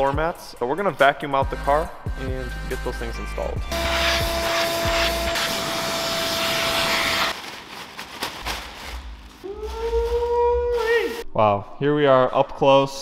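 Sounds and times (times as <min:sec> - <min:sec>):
vacuum cleaner running: 0:03.8 - 0:07.3.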